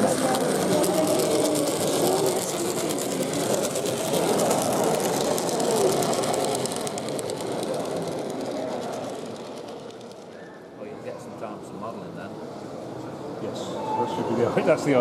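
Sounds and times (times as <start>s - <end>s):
wheels ticking on rails: 0.0s - 10.4s.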